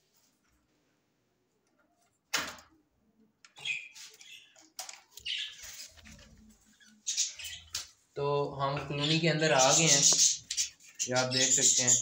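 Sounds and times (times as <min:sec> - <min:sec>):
budgerigars chirping: 0:05.2 - 0:06.0, 0:06.8 - 0:07.8, 0:08.9 - 0:12.0.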